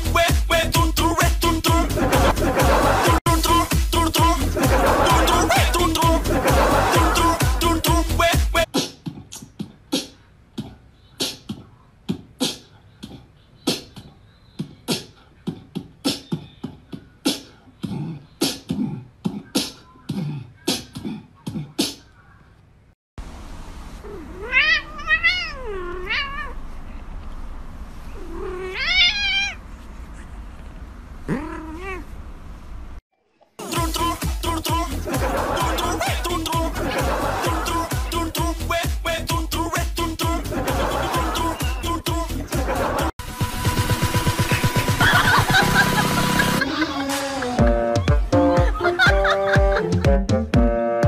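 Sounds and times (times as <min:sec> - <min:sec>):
cat meowing: 0:24.0 - 0:26.6, 0:28.2 - 0:29.6, 0:31.3 - 0:32.1.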